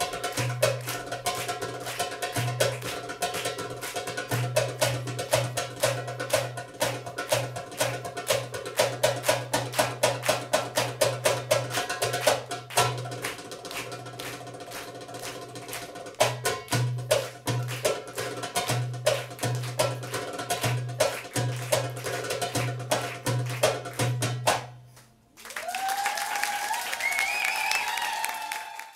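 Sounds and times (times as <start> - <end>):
goblet drum solo: 0.0 - 24.8
audience applause and cheering: 25.3 - 28.9.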